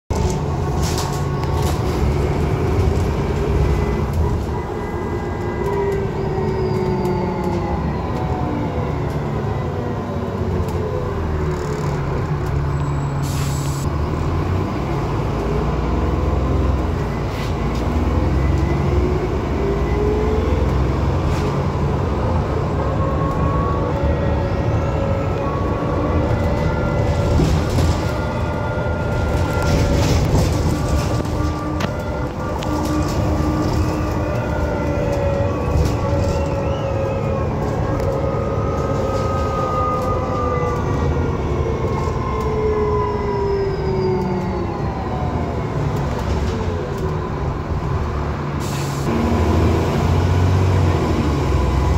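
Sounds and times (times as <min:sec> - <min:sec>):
bus diesel engine rumbling: 0:00.1 - 0:51.9
air brakes hiss: 0:13.1 - 0:13.8, 0:48.6 - 0:49.1.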